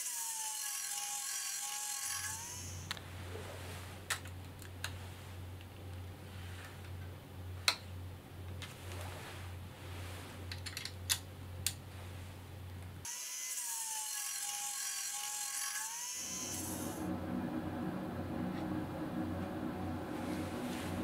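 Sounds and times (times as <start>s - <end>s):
belt sander hissing and whining: 0.0s - 2.9s, 13.1s - 21.0s.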